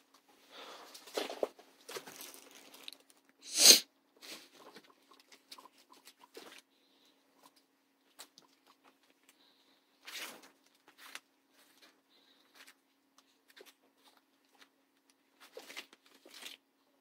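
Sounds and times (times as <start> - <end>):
plastic bag and newspaper rustling: 0.9 - 3.3, 15.4 - 16.6.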